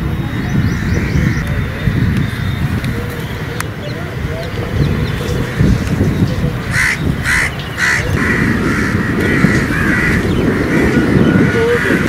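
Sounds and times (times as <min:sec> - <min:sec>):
low rumbling noise: 0:00.0 - 0:12.0
crows cawing: 0:06.6 - 0:12.0.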